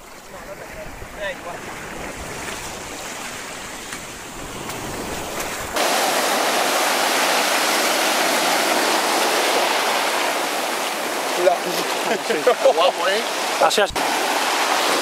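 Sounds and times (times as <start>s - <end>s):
wind rumbling on microphone: 0.0s - 11.1s
surf washing over pebbles: 0.0s - 15.0s.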